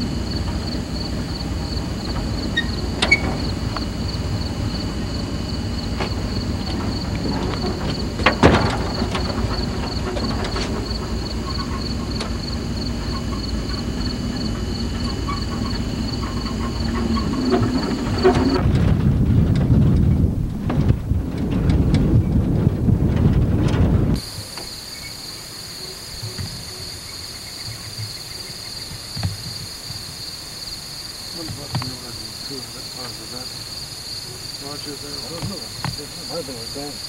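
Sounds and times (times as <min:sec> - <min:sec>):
insects chirping: 0:00.0 - 0:18.8, 0:24.2 - 0:37.0
steady low rumble: 0:00.0 - 0:24.4.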